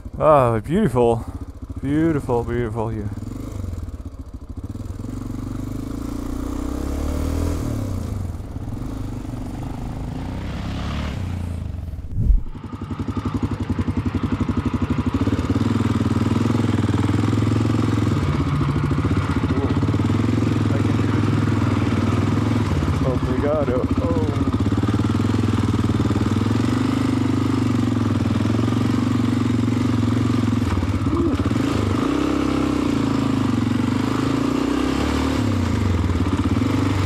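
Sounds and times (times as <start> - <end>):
motorcycle engine running: 0.0 - 37.0
rising whoosh: 9.2 - 12.7
sharp thump: 12.0 - 12.6.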